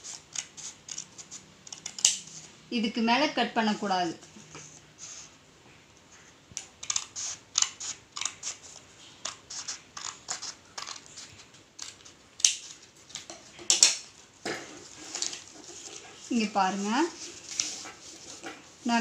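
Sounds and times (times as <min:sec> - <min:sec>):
scissors snipping paper: 0:00.0 - 0:02.5, 0:06.8 - 0:14.0.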